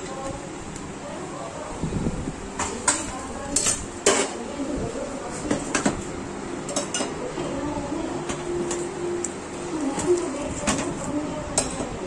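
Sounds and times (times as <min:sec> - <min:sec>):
metal utensils clinking on plate: 0:02.6 - 0:04.4, 0:06.7 - 0:07.2.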